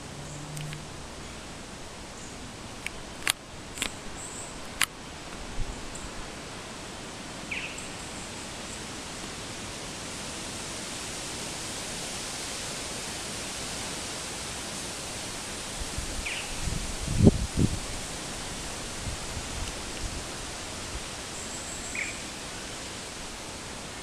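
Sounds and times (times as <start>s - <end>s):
outdoor background hiss: 0.0s - 24.0s
sharp clicks: 2.8s - 4.0s.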